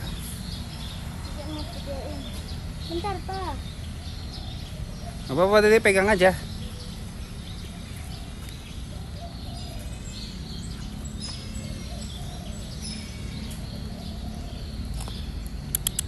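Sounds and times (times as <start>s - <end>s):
bird chirps: 0.0s - 16.0s.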